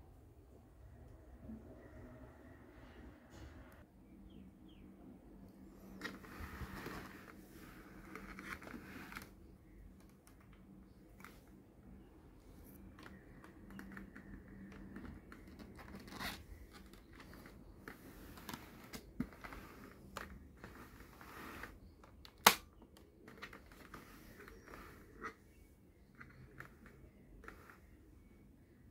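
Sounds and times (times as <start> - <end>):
plastic snapping: 22.2 - 23.1.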